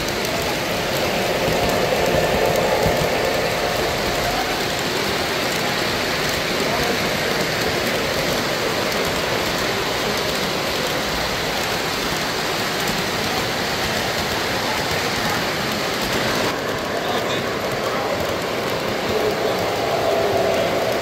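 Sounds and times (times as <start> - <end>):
model trains rolling on track: 0.0 - 21.0.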